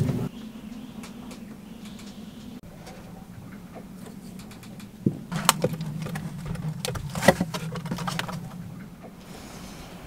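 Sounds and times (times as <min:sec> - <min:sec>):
steady low hum: 0:00.0 - 0:10.0
handling knocks and rustles: 0:01.3 - 0:09.2.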